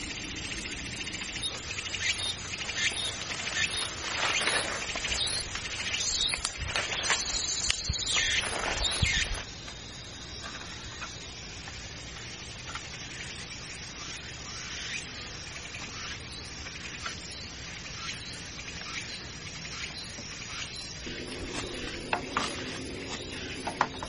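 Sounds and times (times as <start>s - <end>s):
lashing rustling on bamboo: 2.8s - 9.5s
background hiss: 16.4s - 24.0s
bamboo poles scraping and knocking: 21.2s - 24.0s.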